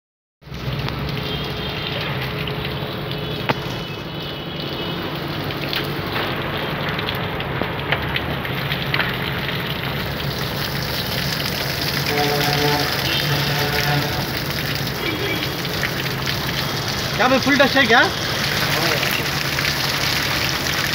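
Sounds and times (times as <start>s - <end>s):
hose water spraying: 10.1s - 20.9s.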